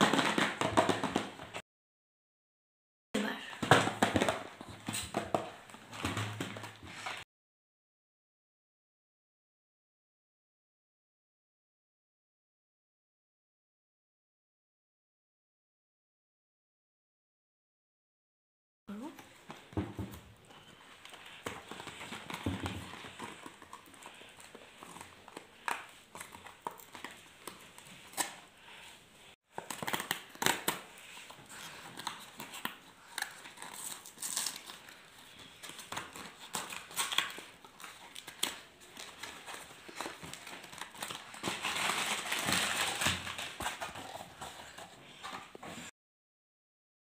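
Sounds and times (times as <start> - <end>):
plastic wrappers crinkling: 20.5 - 28.9, 29.5 - 45.6.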